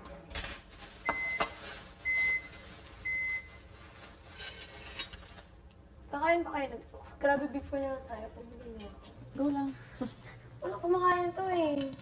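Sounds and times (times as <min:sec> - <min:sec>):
kitchen utensils clinking: 0:11.4 - 0:12.0.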